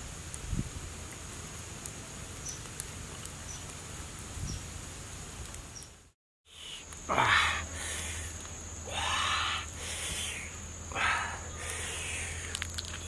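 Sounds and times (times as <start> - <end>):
high insect drone: 6.5 - 13.0
faint ticks: 12.4 - 13.0.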